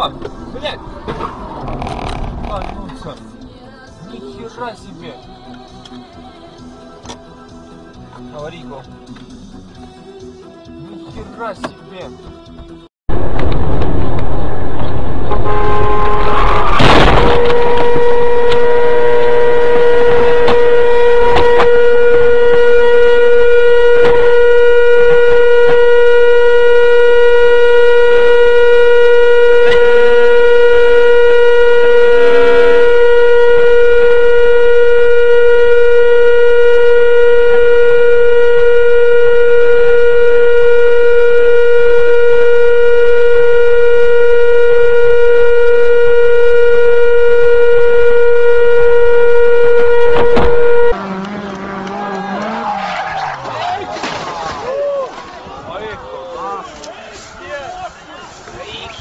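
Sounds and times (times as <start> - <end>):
car horn long tone: 14.2 - 53.7.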